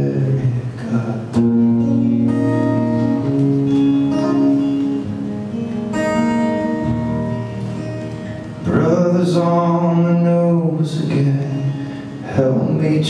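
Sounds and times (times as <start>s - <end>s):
acoustic guitar strumming: 0.0s - 13.0s
person singing: 8.6s - 13.0s.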